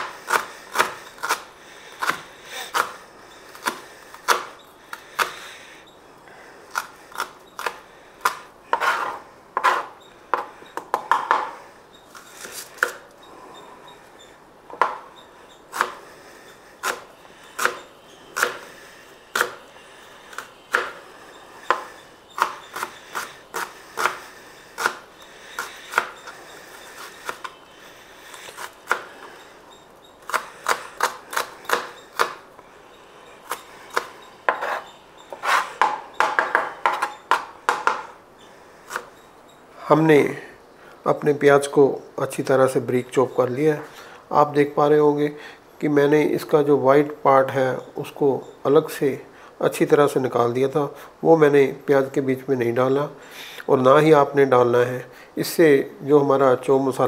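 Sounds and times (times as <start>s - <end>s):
knife chopping on cutting board: 20.7s - 21.0s, 33.5s - 38.1s.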